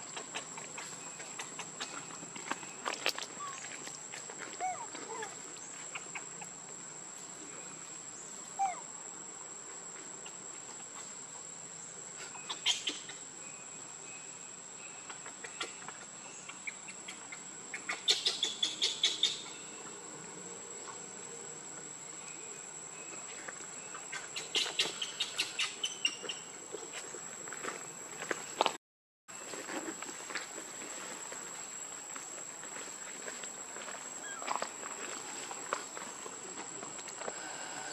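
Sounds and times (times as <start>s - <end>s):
insect rapid clicks: 0.0s - 4.0s, 15.1s - 19.5s, 23.5s - 26.5s
insects high-pitched drone: 0.0s - 28.7s, 29.3s - 37.9s.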